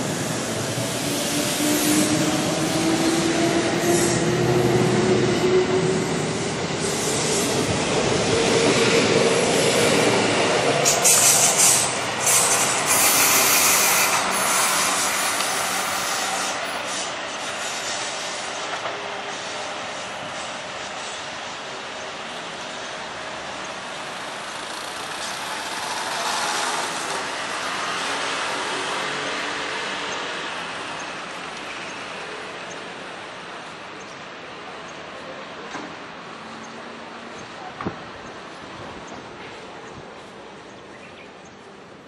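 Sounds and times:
electric train passing: 0.0 - 41.0
wheel squeal: 10.9 - 17.1.

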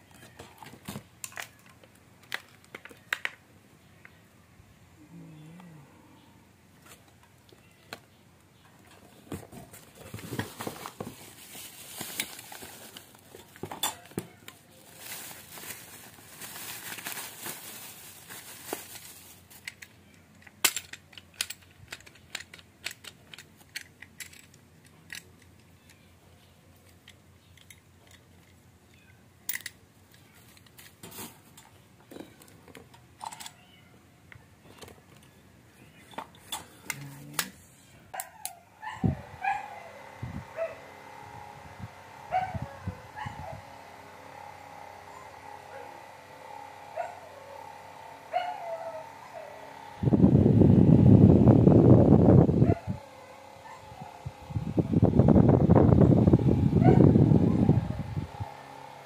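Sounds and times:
cardboard rustling: 9.0 - 19.6
plastic wrapping crinkling: 9.6 - 19.9
plastic and metal parts clicking: 18.9 - 26.1, 26.8 - 31.0.

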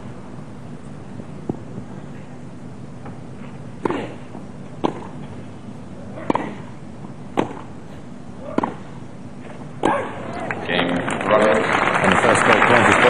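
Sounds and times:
tennis balls struck by rackets: 3.0 - 5.4, 6.1 - 7.8, 8.4 - 10.2.

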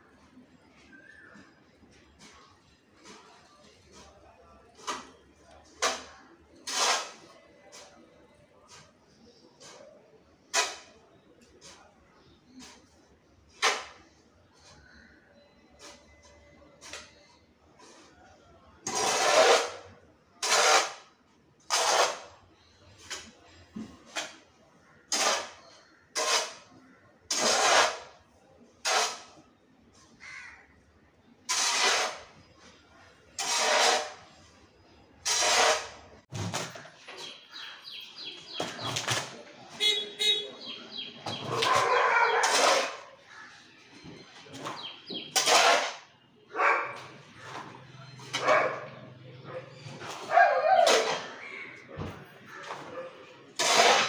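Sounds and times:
hoe scraping soil on tiles: 2.0 - 15.1, 15.7 - 23.4, 24.1 - 29.4, 31.4 - 34.6, 35.2 - 38.9, 40.6 - 43.6, 44.6 - 46.2, 53.5 - 54.0
soil scraping and pouring: 2.3 - 8.0, 18.8 - 19.8, 27.3 - 28.2, 31.5 - 32.7, 33.4 - 34.6, 35.2 - 36.0, 53.6 - 54.0.

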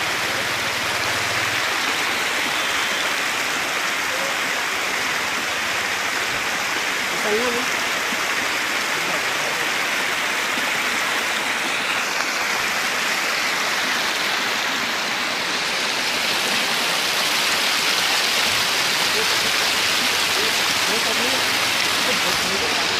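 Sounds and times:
waterfall rushing over rocks: 0.0 - 22.9.

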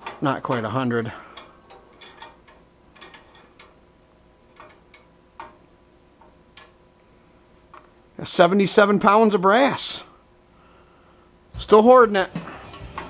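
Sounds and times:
scale weight clicking along beam: 0.0 - 6.9.

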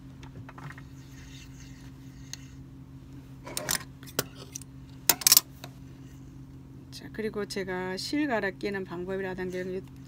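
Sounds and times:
low electrical hum: 0.0 - 10.0
metal parts clicking and rattling: 4.5 - 5.5.

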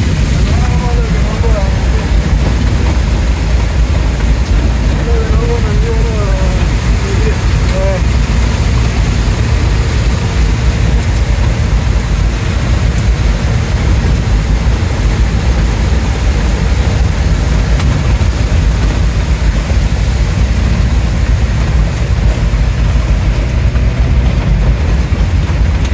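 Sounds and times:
vehicle engine rumbling: 0.0 - 25.9
water spraying against vehicle: 0.0 - 25.9.

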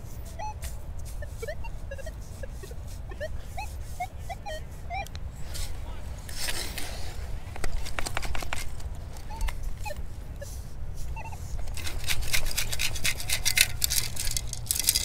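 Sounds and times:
short faint chirps: 0.3 - 5.1.

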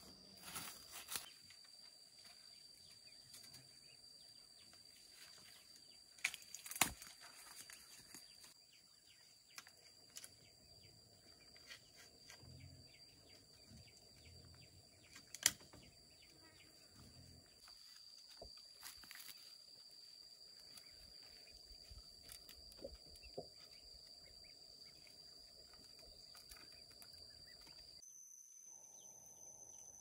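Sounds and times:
faint chirps: 7.3 - 30.0
high-pitched hum: 26.7 - 30.0.

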